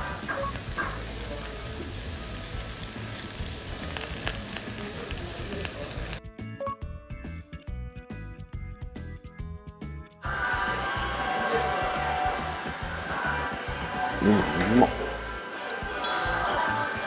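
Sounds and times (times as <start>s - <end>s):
steak sizzling on hot plate: 0.0s - 6.2s
background music with held notes: 0.0s - 17.0s.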